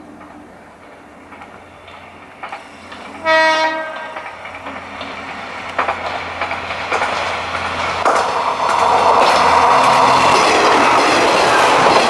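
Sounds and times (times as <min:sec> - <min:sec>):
train wheels clattering over rail joints: 0:00.2 - 0:12.0
train horn blast: 0:03.2 - 0:04.2.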